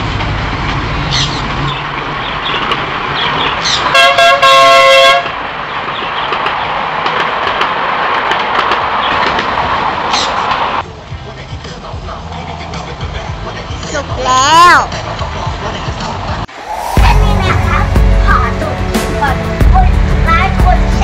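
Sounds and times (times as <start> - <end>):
miniature train horn tooting: 3.9 - 5.3.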